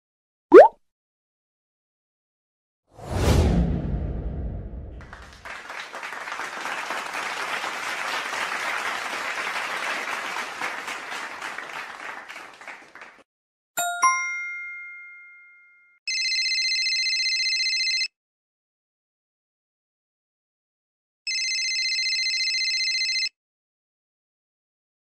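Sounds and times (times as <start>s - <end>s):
audience applause: 5.0s - 13.2s
bell-like ding: 13.8s - 16.0s
electronic phone ring: 16.1s - 18.1s, 21.3s - 23.3s.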